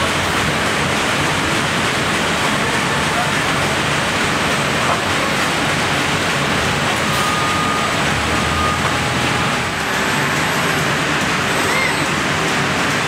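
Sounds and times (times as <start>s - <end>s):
steady machinery noise: 0.0s - 13.0s
short high tones: 7.0s - 10.7s.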